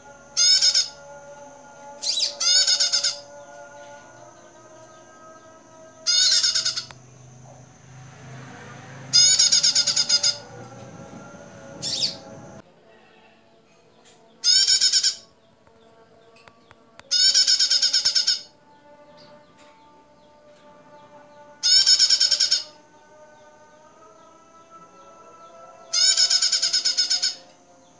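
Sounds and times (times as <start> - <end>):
bird chattering calls: 6.1 - 7.0, 11.8 - 12.5.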